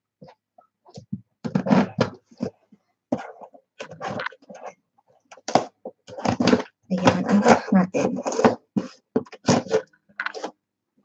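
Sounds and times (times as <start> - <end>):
cardboard box scraping and knocking: 1.5 - 4.6, 5.5 - 10.5.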